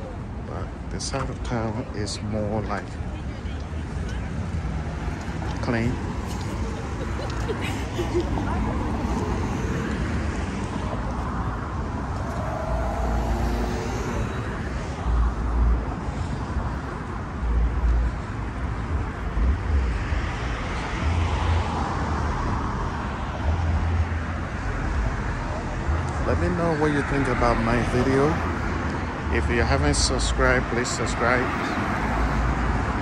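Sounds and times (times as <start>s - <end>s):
hum of traffic: 0.0s - 33.0s
vehicle passing: 4.6s - 16.6s.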